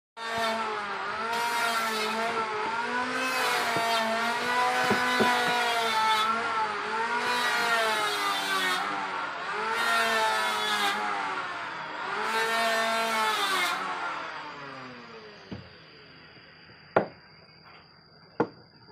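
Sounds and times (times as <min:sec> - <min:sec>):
electric motor running: 0:00.3 - 0:16.2
sharp knocks of timber: 0:03.7 - 0:05.8, 0:17.0 - 0:17.2.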